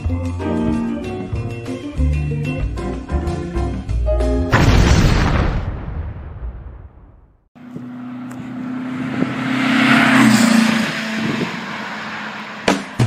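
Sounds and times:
vehicle engine passing by: 0:07.6 - 0:13.0.

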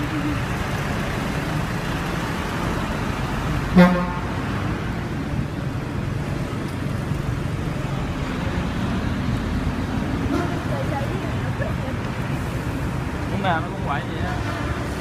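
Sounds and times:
street traffic noise: 0:00.0 - 0:15.0
vehicle horn toot: 0:03.8 - 0:04.3.

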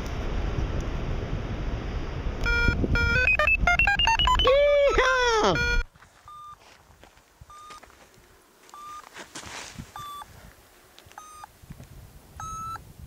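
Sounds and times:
wind noise: 0:00.0 - 0:08.4, 0:09.4 - 0:13.0
variometer beeping: 0:02.4 - 0:06.6, 0:07.5 - 0:07.8, 0:08.7 - 0:09.0, 0:10.0 - 0:10.3, 0:11.2 - 0:11.5, 0:12.4 - 0:12.8.

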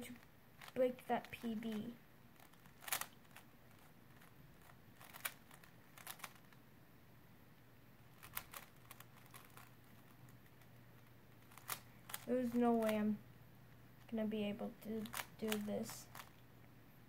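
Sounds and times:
puzzle cube clicking: 0:00.1 - 0:06.6, 0:08.1 - 0:13.0, 0:15.0 - 0:16.4.

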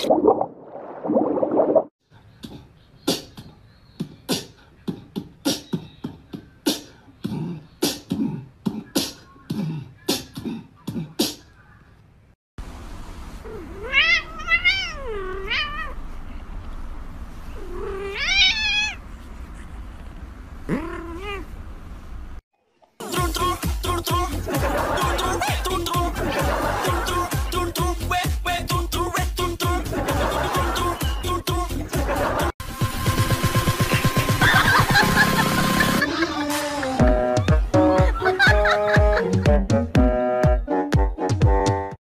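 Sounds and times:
cat meowing: 0:13.5 - 0:16.0, 0:17.6 - 0:19.0.

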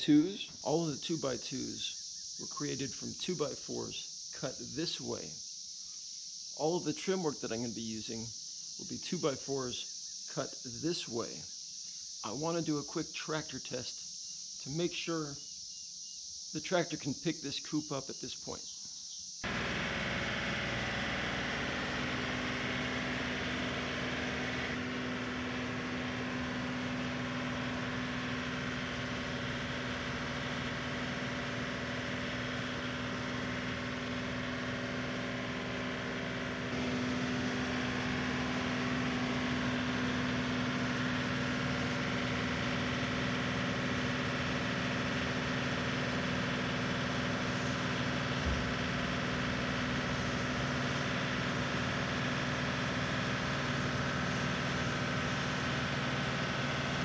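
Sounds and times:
tractor diesel engine running: 0:00.0 - 0:03.6, 0:19.4 - 0:57.0.

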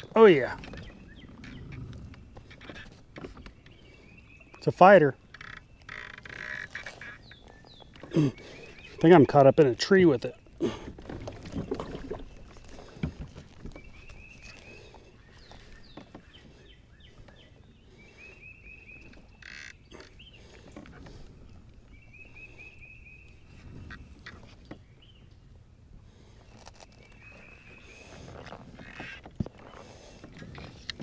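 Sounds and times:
fishing rod and reel clicks: 0:05.3 - 0:07.2.

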